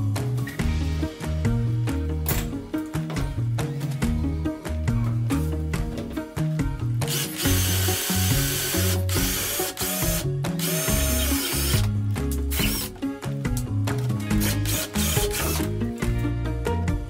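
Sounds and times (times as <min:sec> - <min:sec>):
background music with bass: 0:00.0 - 0:17.0
cordless drill boring through wood: 0:07.1 - 0:11.9, 0:12.5 - 0:12.9, 0:14.4 - 0:15.7.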